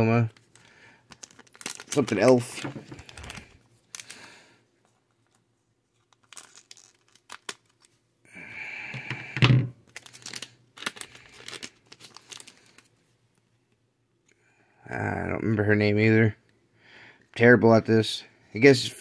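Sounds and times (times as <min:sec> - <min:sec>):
plastic wrapping crinkling: 0:00.2 - 0:04.4, 0:05.0 - 0:08.0, 0:09.8 - 0:12.9.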